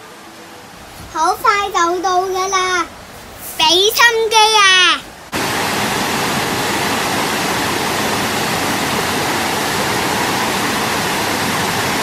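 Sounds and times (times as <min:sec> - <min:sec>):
waterfall rushing: 0:04.2 - 0:12.0.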